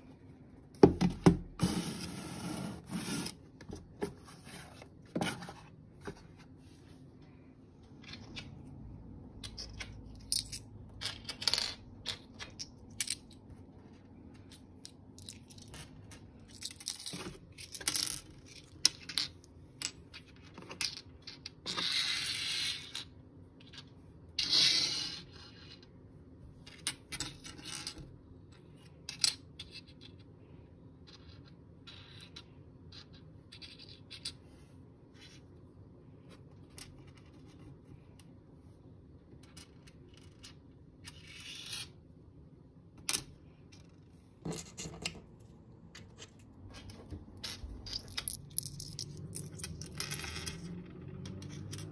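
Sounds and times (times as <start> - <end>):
objects rubbing and scraping: 1.5 - 7.1.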